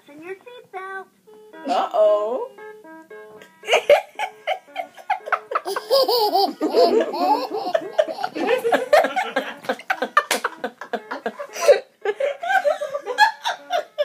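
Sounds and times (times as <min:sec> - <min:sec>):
baby laughing: 0:03.8 - 0:11.7.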